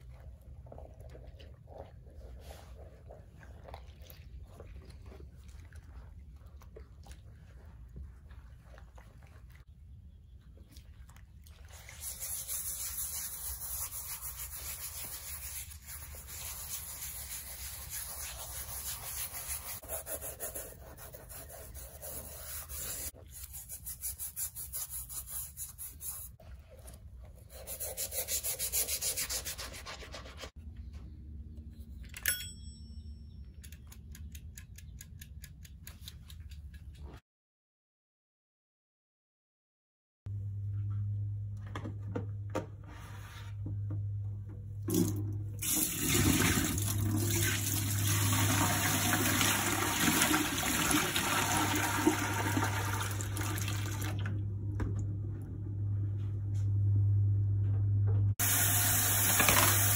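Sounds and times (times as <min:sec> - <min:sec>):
brush scrubbing leather: 0:11.6 - 0:30.5.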